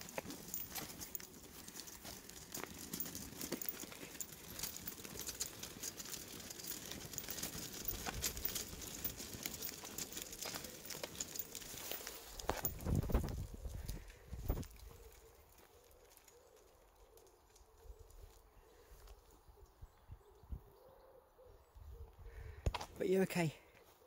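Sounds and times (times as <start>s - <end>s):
footsteps on tarmac: 0.0s - 13.5s.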